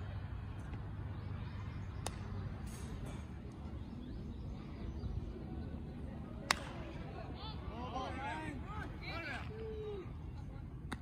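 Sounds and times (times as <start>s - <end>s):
open-air ballfield ambience: 0.0s - 11.0s
sharp crack of baseball impact: 2.0s - 3.2s, 6.4s - 6.8s.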